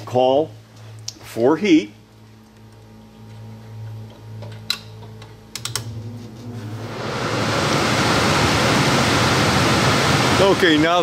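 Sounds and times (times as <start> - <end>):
furnace blower rush of air: 5.9 - 11.0.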